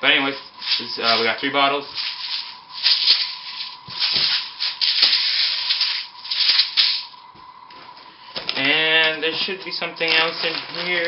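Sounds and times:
pellets rattling in plastic bottles: 0.2 - 7.2, 8.4 - 11.0
cardboard and paper rustling: 7.7 - 11.0.

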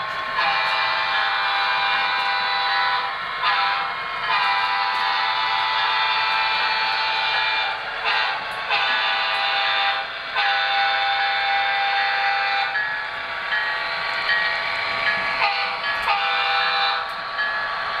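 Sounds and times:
model train diesel horn blasts: 0.4 - 12.8, 15.4 - 17.1.

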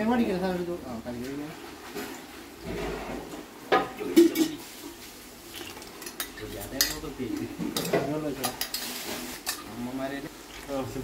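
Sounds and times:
metal spoon stirring in pan: 4.2 - 11.0.

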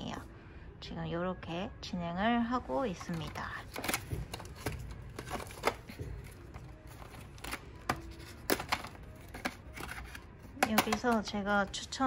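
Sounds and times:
plastic cases clicking and knocking: 3.0 - 11.4.

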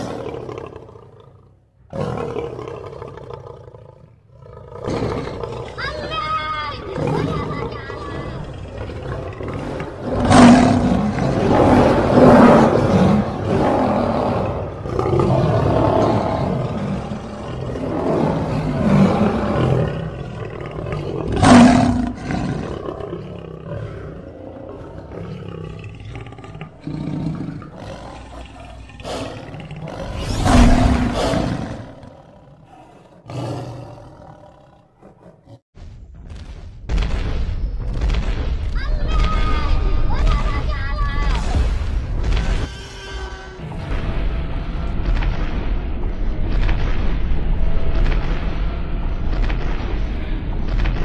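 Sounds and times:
lion roaring and growling: 0.0 - 35.6.

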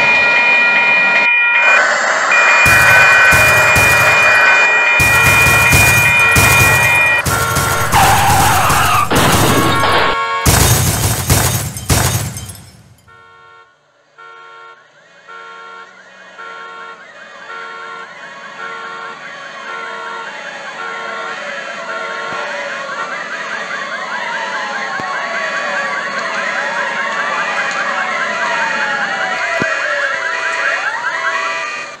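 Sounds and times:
wailing sirens: 0.0 - 10.5, 13.1 - 32.0
two-tone siren: 0.0 - 10.6, 13.0 - 32.0
loud crashing and smashing: 2.7 - 13.1.

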